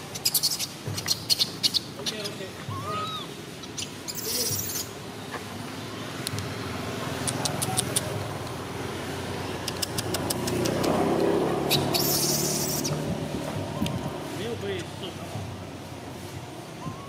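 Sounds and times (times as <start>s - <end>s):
vehicle engine rumble: 0.0s - 17.0s
faint sharp clicks: 9.6s - 11.0s.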